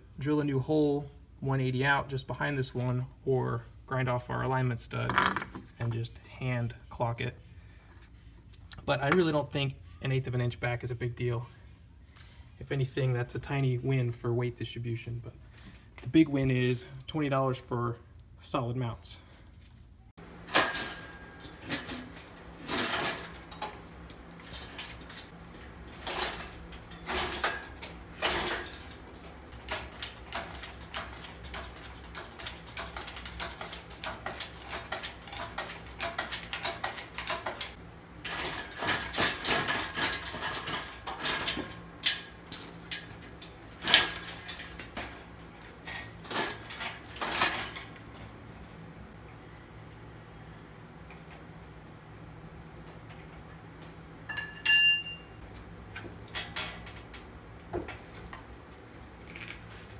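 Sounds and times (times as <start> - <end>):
hoist chain clinking and clanking: 20.3 - 48.9, 54.2 - 59.9.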